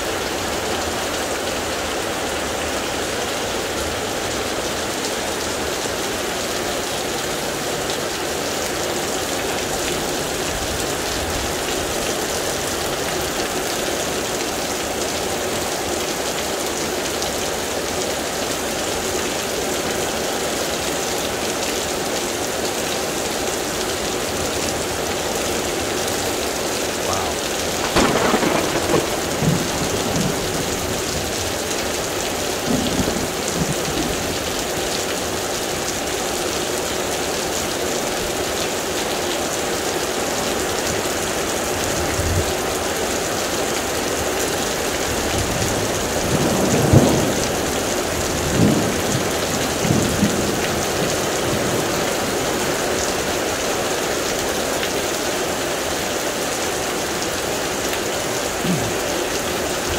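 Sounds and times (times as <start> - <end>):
heavy rain pouring: 0.0 - 59.9
thunder rolling: 27.8 - 31.6.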